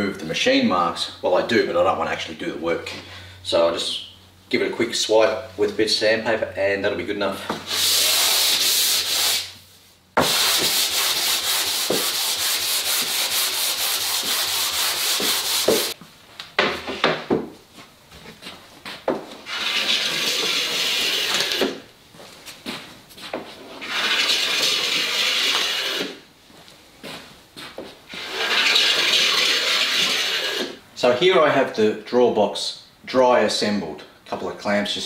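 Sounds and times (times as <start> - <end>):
sandpaper rubbing on wood: 7.6 - 9.6, 10.2 - 16.0, 19.4 - 21.7, 23.6 - 26.2, 28.1 - 30.8
boards knocking on bench: 15.2 - 15.9, 16.6 - 17.6.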